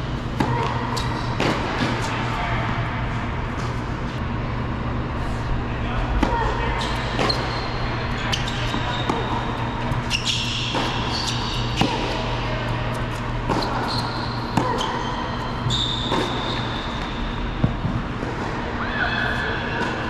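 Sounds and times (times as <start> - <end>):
ventilation hum: 0.0 - 20.0
sneakers squeaking on court: 6.3 - 17.8.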